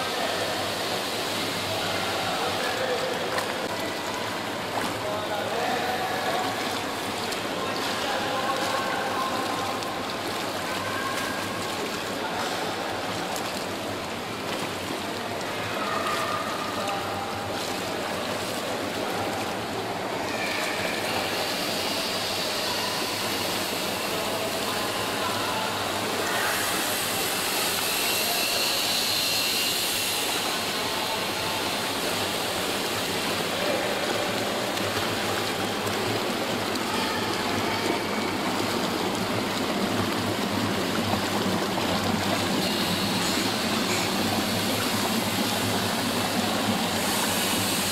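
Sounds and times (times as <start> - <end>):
pool water splashing: 0.0 - 47.9.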